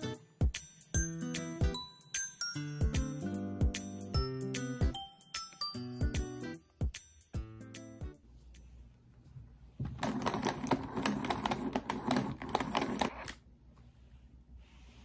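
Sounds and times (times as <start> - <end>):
pencil sharpener grinding: 10.0 - 13.4.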